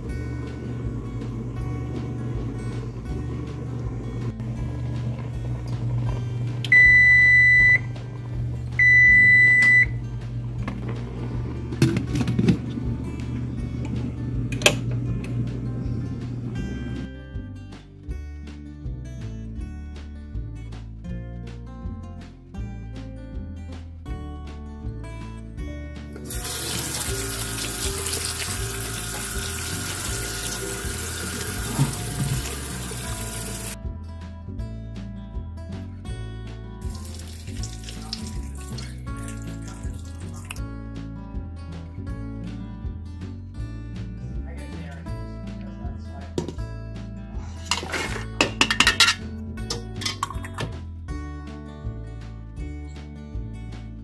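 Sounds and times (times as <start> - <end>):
kitchen timer beeping: 6.6 - 8.0, 8.8 - 10.0
tap water running onto beans: 26.2 - 33.8, 36.8 - 40.6.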